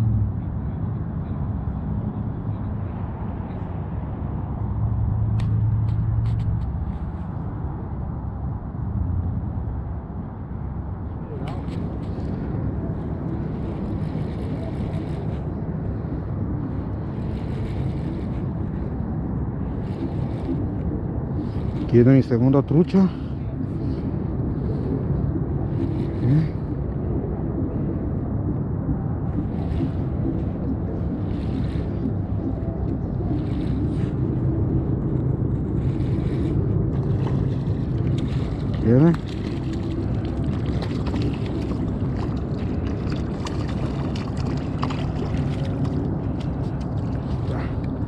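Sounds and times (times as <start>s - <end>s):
low outdoor rumble: 0.0s - 48.0s
wind buffeting microphone: 0.0s - 48.0s
fish splashing in water: 35.9s - 48.0s.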